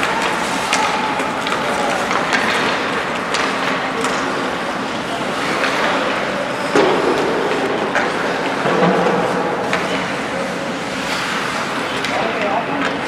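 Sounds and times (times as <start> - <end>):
hockey sticks and puck clacking: 0.0 - 13.0
skates scraping ice: 0.0 - 13.0.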